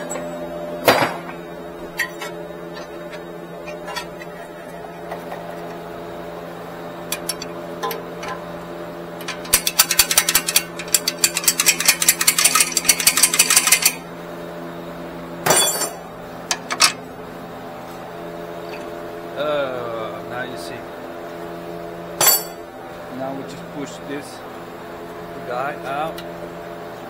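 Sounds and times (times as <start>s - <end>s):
impact wrench hammering: 22.2s - 22.6s.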